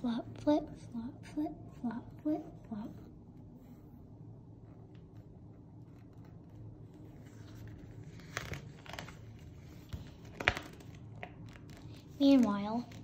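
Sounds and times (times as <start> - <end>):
book page rustling: 5.9 - 13.0.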